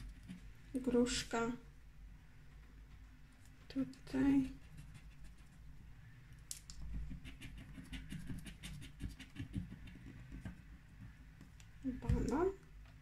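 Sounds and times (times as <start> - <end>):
scraper scratching card: 6.9 - 10.0.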